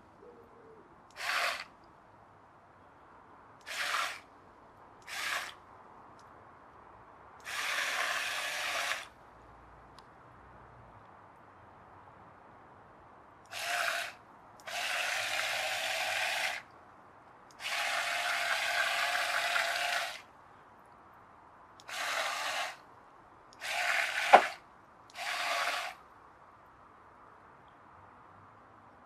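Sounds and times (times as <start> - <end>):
toy boat motors buzzing: 1.1 - 1.7, 3.6 - 4.2, 5.0 - 5.6, 7.4 - 9.1, 13.5 - 16.6, 17.6 - 20.2, 21.8 - 22.8, 23.6 - 26.0.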